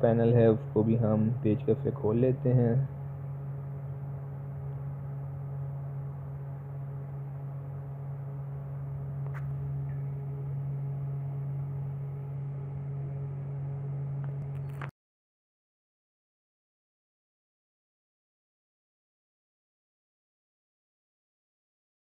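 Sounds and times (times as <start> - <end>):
low hum: 0.0 - 14.9.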